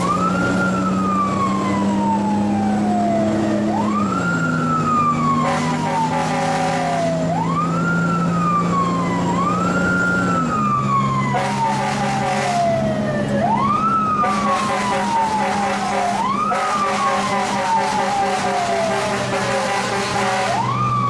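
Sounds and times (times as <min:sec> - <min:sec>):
fire truck siren wailing: 0:00.0 - 0:21.0.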